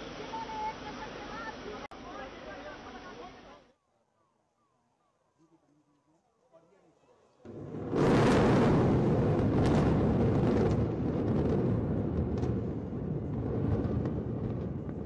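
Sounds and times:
building collapsing roar: 7.5 - 15.0
sharp cracks: 7.5 - 15.0.

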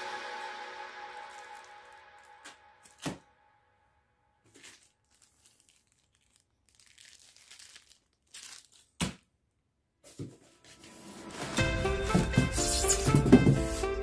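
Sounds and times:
cardboard and foam rustling: 10.1 - 14.0.

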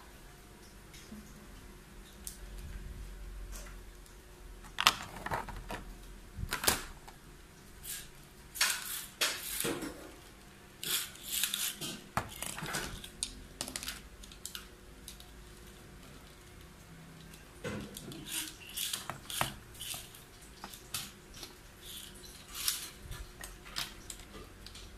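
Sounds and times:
plastic parts clicking and rattling: 4.6 - 7.2, 10.9 - 16.4, 17.2 - 24.9.

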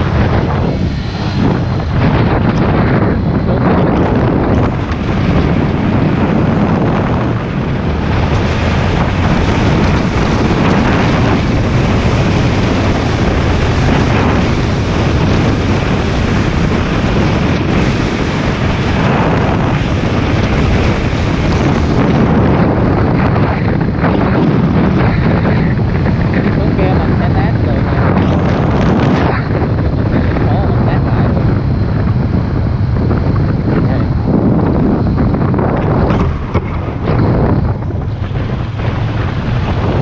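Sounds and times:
motorcycle engine running: 0.0 - 40.0
wind rushing over microphone: 0.0 - 40.0.

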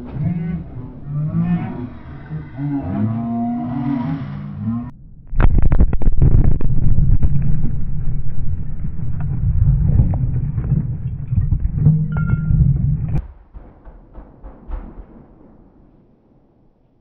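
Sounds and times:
explosion deep rumble: 4.6 - 17.0
flying debris hits: 4.9 - 17.0.

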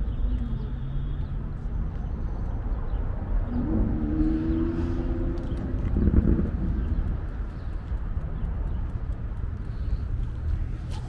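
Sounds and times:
street traffic noise: 0.0 - 11.0
wind buffeting microphone: 3.5 - 11.0.

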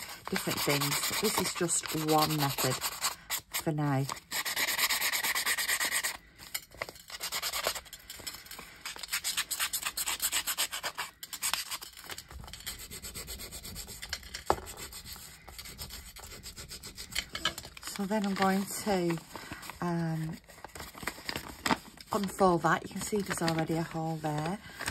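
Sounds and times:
nail file rasping on paper: 0.0 - 6.2, 7.0 - 19.2.

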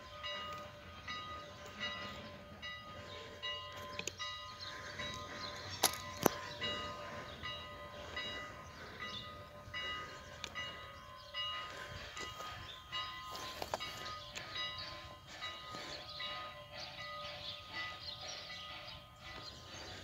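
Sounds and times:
steam locomotive exhaust chuffing: 0.0 - 20.0.

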